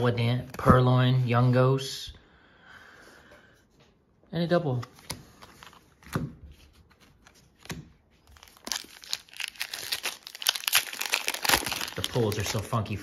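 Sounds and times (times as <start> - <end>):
foil wrapper crinkling and tearing: 8.2 - 13.0.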